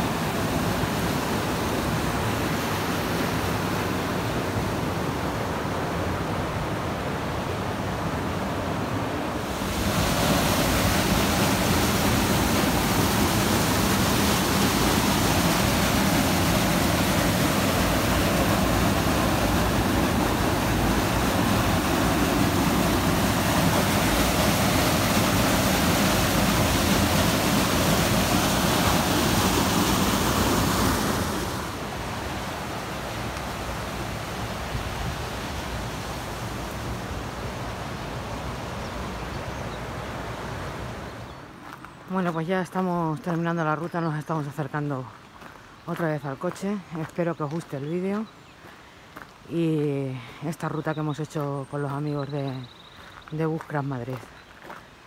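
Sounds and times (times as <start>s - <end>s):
river rushing over rocks: 0.0s - 41.7s.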